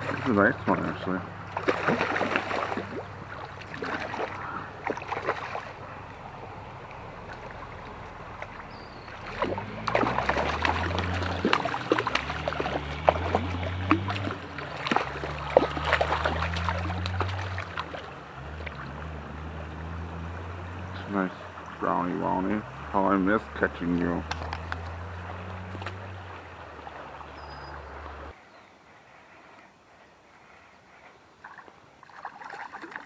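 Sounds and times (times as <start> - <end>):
stream rushing: 0.0 - 28.4
fish thrashing splashes: 1.4 - 6.2, 6.8 - 19.8, 24.2 - 28.1.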